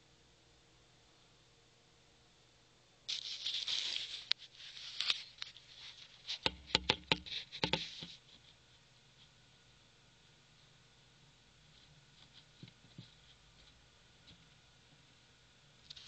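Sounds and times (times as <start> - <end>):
snake scuffling and scratching: 3.1 - 16.0
sharp knocks: 6.4 - 8.0.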